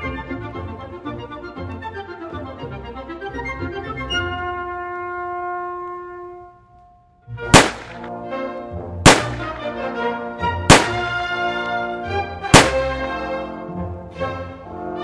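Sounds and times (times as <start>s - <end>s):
brass music: 0.0s - 6.7s, 7.3s - 15.0s
loud sharp bangs: 7.5s - 8.1s, 9.1s - 9.6s, 10.7s - 11.2s, 12.5s - 13.0s.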